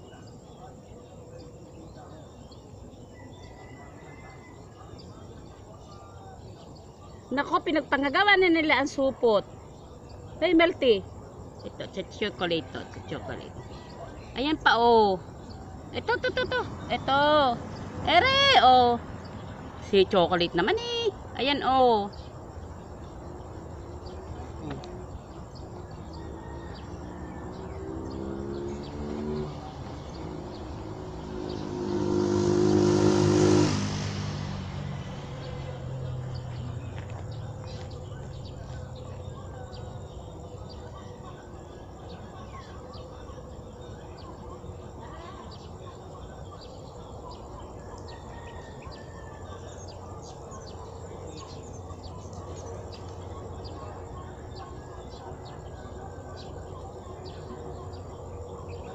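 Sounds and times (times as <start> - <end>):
vehicle engine passing: 10.9 - 58.9
faint high chirps and ticks: 36.0 - 58.9.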